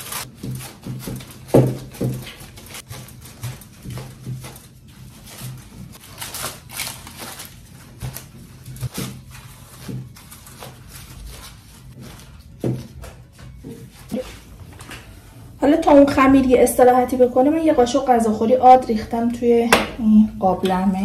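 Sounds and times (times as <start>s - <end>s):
steady low hum: 11.0s - 21.0s.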